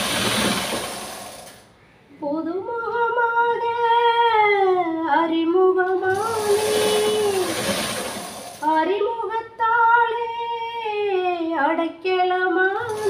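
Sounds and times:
hand sewing machine running: 0.0s - 1.6s, 6.1s - 8.8s.

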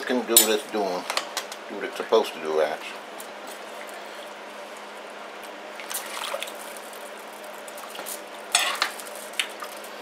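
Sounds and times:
wet sloshing and squishing: 3.3s - 8.3s.

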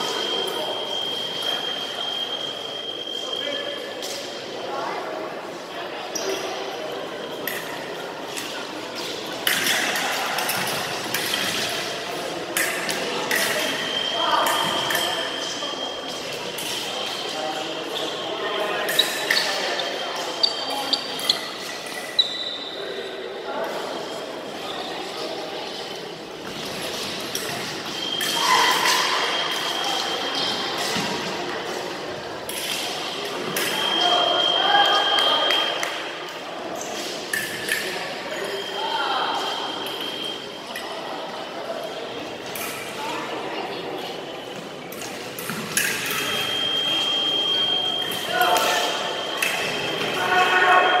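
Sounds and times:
scoring machine beep: 46.4s - 50.0s.

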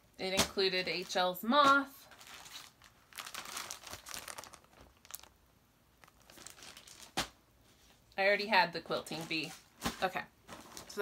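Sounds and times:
packaging crinkling: 2.0s - 7.4s.

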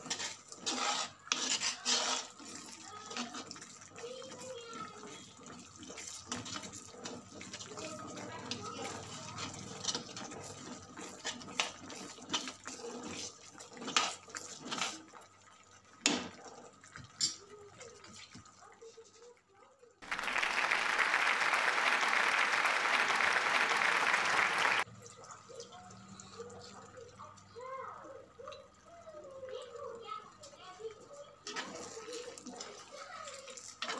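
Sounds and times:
spoon scraping a pan: 0.0s - 4.4s, 5.0s - 15.0s.

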